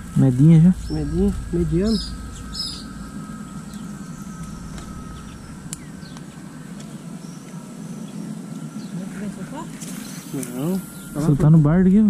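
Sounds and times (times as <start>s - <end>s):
low rumble: 0.0s - 9.7s
faint bird chirps: 0.0s - 11.5s.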